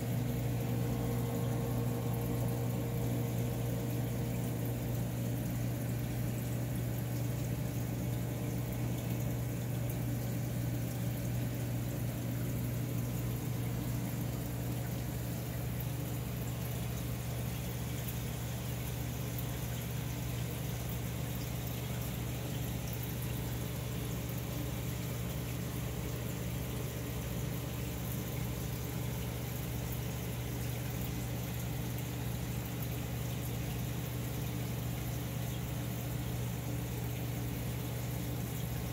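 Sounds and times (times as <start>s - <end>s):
aquarium pump hum: 0.0s - 38.9s.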